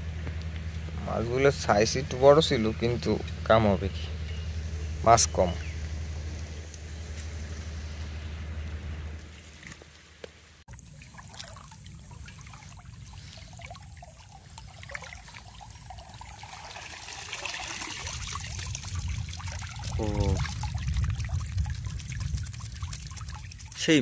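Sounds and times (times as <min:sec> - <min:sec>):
water trickling and pouring: 0:10.7 - 0:24.0.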